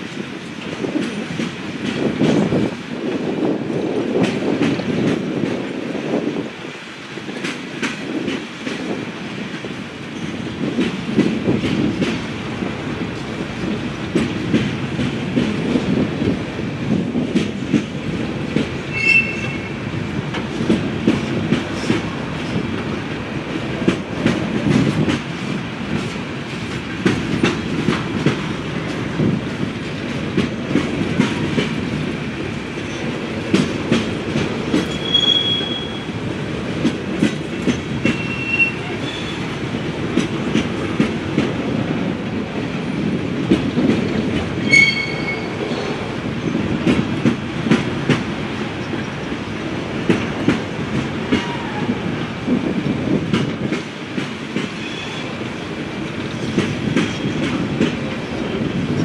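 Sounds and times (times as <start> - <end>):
freight train rolling past: 0.0 - 59.0
wheels clacking over rail joints: 7.2 - 59.0
high wheel squeals: 18.9 - 19.7, 34.9 - 36.1, 38.1 - 39.4, 44.6 - 45.6.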